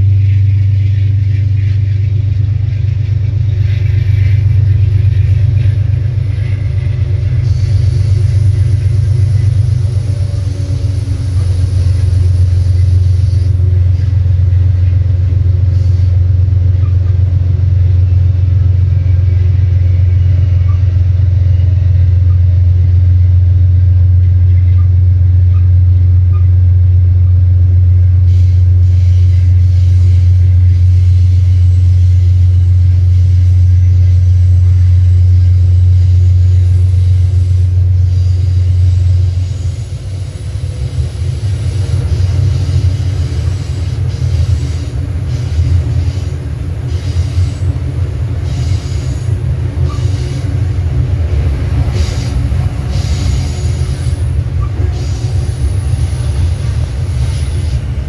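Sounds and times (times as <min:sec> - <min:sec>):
diesel locomotive engine drone: 0:00.0 - 0:58.0
rumble of moving train: 0:00.0 - 0:58.0
wheels squealing: 0:36.1 - 0:58.0.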